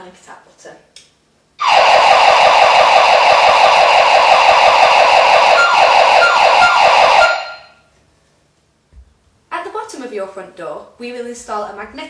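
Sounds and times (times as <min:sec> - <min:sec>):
burglar alarm siren warbling: 0:01.6 - 0:07.8
alarm keypad beeps: 0:02.8 - 0:07.8.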